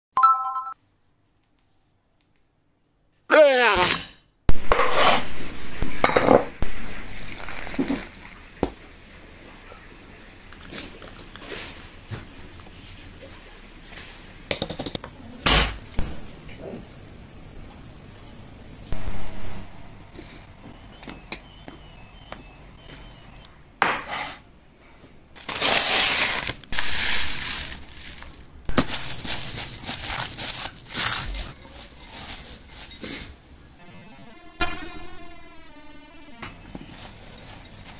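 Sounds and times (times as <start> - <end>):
cornflakes crunching: 25.4 - 33.2.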